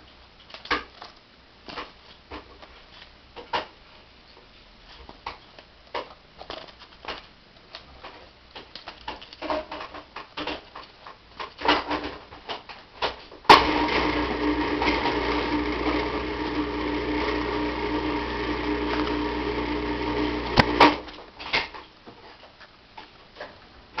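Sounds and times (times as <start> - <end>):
machine humming: 13.5 - 21.1.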